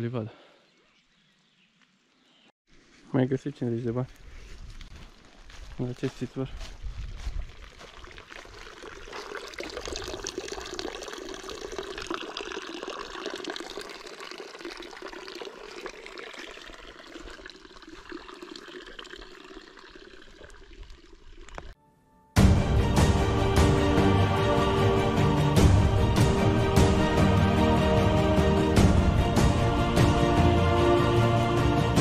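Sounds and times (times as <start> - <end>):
water trickling into a trough: 7.5 - 21.8.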